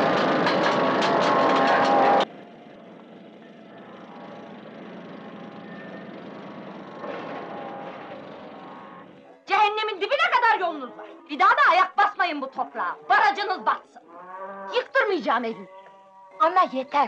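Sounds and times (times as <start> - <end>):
diesel construction machinery running: 0.0 - 9.5.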